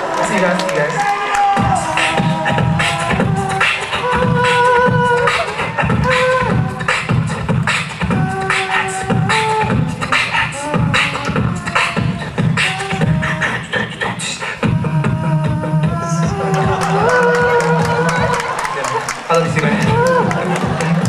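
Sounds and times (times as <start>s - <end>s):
beatboxing drum hits: 1.4s - 18.4s
beatboxer held notes: 1.6s - 18.3s.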